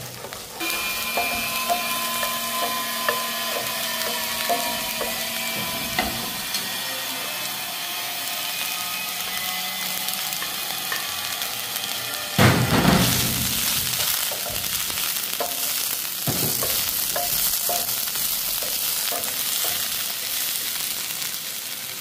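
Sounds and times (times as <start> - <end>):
onions sizzling in a frying pan: 0.0 - 22.0
wooden spatula scraping a pan: 0.1 - 6.8
spatula tapping on pan: 0.7 - 6.6, 13.1 - 20.5.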